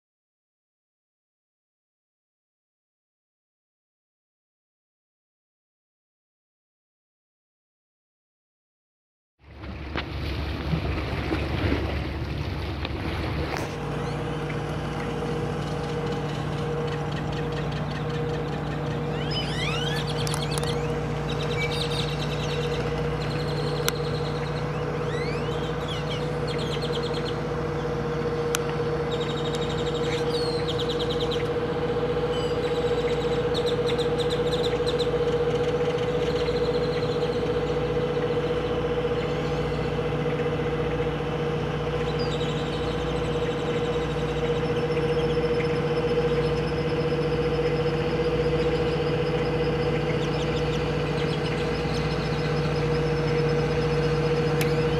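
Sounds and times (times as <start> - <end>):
engine humming: 9.4 - 54.9
birds chirping: 13.2 - 54.9.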